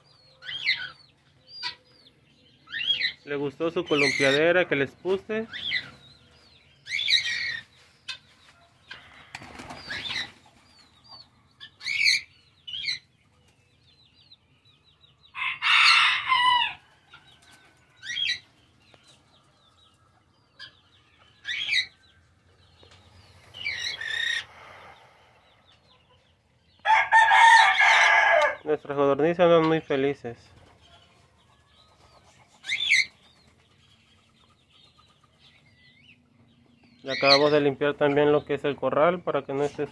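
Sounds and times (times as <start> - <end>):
chicken calls: 0.0 - 39.9
faint small birds chirping: 0.0 - 39.9
wings flapping: 9.2 - 10.8.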